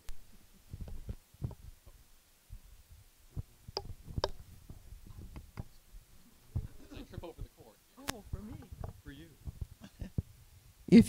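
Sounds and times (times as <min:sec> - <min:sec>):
soft handling thumps: 0:03.3 - 0:10.4.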